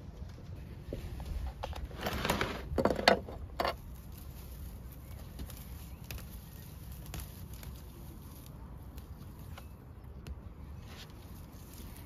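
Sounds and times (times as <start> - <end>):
plant roots rustling and crackling: 0.0 - 12.0.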